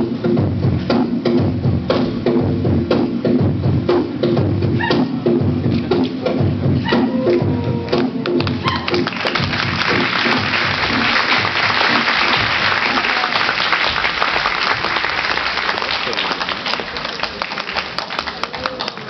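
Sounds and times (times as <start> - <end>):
audience applauding: 8.2 - 19.0.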